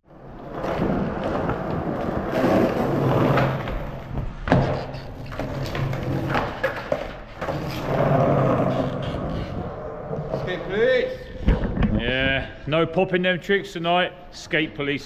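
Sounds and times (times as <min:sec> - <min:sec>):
skateboard wheels rolling on concrete: 0:00.1 - 0:12.0.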